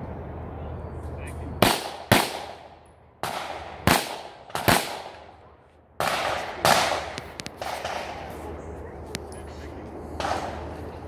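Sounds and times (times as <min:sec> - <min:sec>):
pistol shots with echo: 0:01.6 - 0:05.4, 0:06.0 - 0:08.3, 0:10.2 - 0:10.7.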